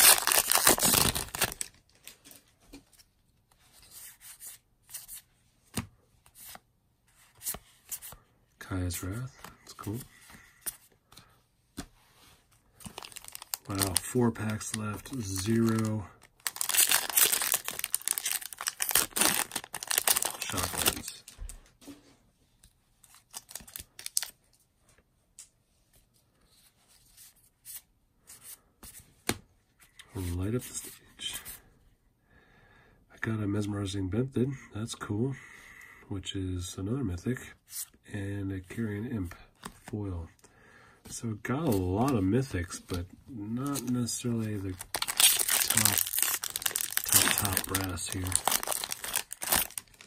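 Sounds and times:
foil wrapper tearing and crinkling: 0.0s - 1.8s, 12.9s - 21.1s, 44.8s - 50.0s
cards clicking and rustling: 12.8s - 21.4s, 44.7s - 50.0s.

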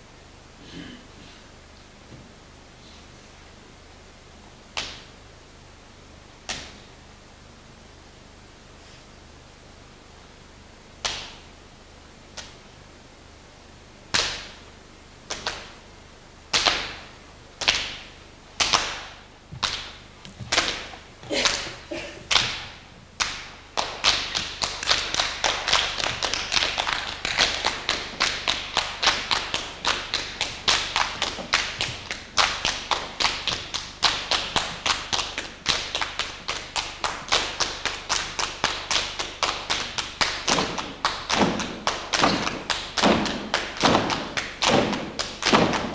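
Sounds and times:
hand claps and slaps: 4.7s - 5.1s, 6.5s - 6.8s, 11.0s - 11.5s, 14.1s - 14.6s, 15.3s - 15.8s, 16.5s - 45.9s.

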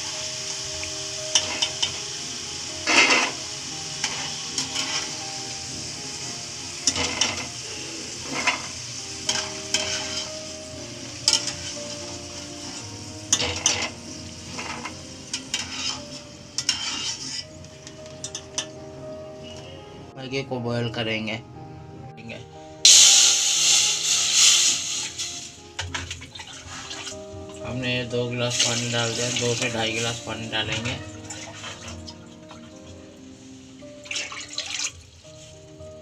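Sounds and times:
potatoes sizzling in hot oil: 0.0s - 18.8s, 22.9s - 36.0s
wire skimmer scraping pan: 2.8s - 3.4s, 4.0s - 5.2s, 6.8s - 7.6s, 8.2s - 10.3s, 11.2s - 18.7s, 23.7s - 27.2s, 28.5s - 32.7s.

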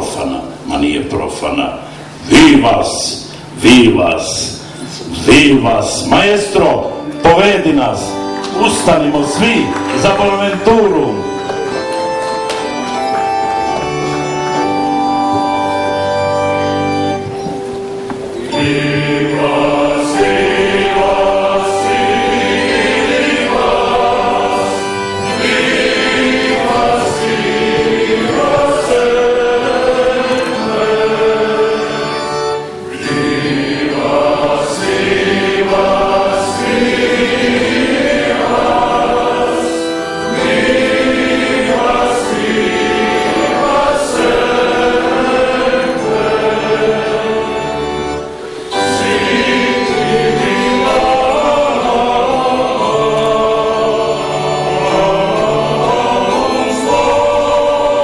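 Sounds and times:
mixed choir singing: 18.3s - 58.0s.

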